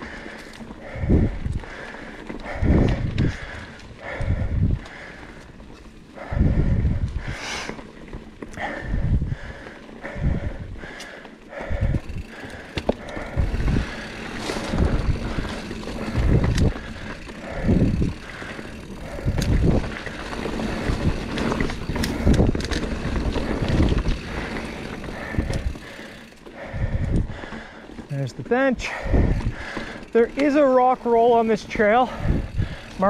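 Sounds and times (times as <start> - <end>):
low rumbles: 0.0 - 7.4, 11.5 - 30.2
bike tyres rolling on dirt: 0.0 - 33.0.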